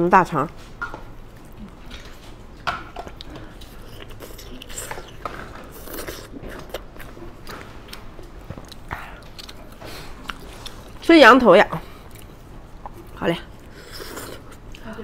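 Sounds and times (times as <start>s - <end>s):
chewing and biting meat: 3.1s - 11.0s, 12.1s - 14.8s.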